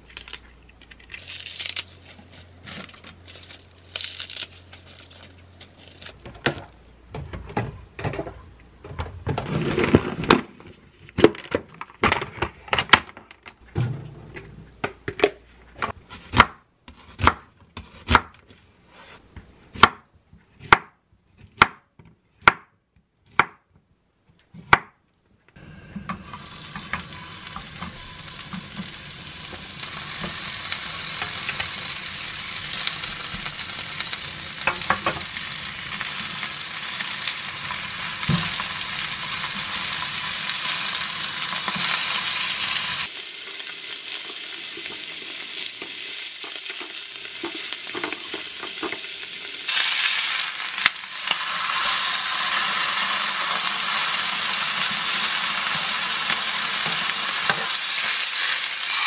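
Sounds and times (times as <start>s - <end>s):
lettuce leaves rustling: 1.1s - 6.2s
meat sizzling in a frying pan: 26.3s - 59.0s.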